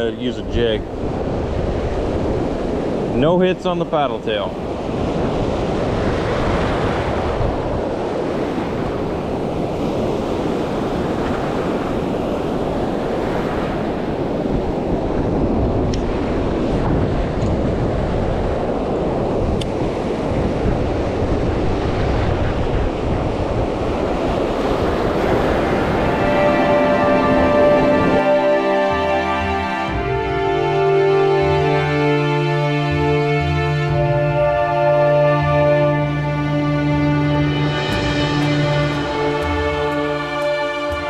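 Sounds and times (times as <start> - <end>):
wind buffeting microphone: 0.0 - 31.2
surf breaking on beach: 0.0 - 32.3.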